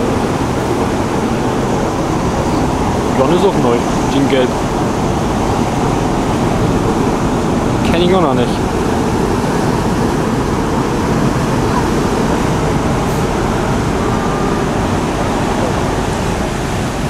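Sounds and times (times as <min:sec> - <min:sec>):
deep rumble: 0:00.0 - 0:17.0
water churning along ship hull: 0:00.0 - 0:17.0.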